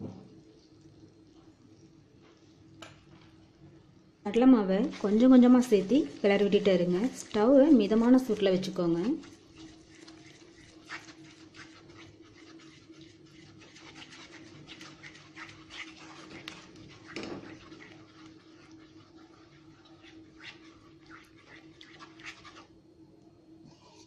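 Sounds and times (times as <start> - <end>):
wooden spatula scraping: 4.4 - 22.7.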